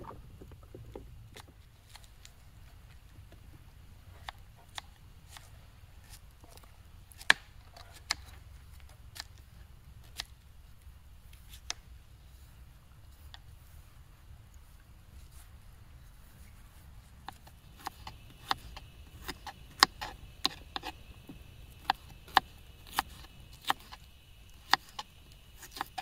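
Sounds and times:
faint low rumble: 0.0s - 7.1s.

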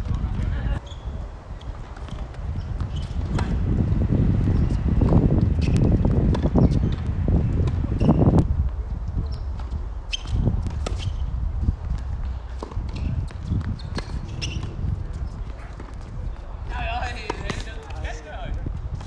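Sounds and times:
shoe steps on court: 1.6s - 19.0s
tennis ball bouncing: 1.9s - 3.8s, 4.4s - 8.1s, 9.6s - 11.2s.

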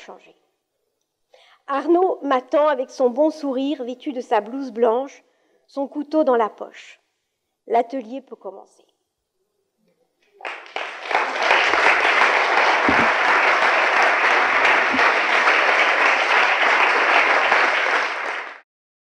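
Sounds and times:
audience applauding: 10.4s - 18.6s.

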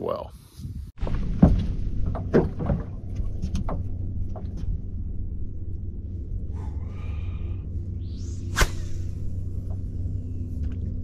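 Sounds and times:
wind on microphone: 0.4s - 4.9s
brief whir: 7.8s - 11.0s.

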